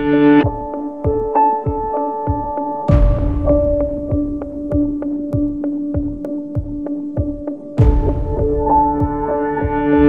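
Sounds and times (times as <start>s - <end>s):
news background music: 1.8s - 6.3s, 7.3s - 10.0s.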